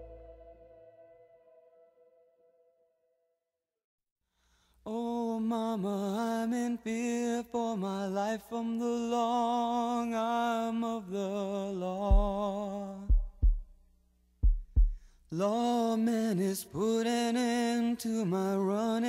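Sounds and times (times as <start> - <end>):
deep thumps: 12.1 - 12.5, 13.1 - 13.8, 14.4 - 15.1.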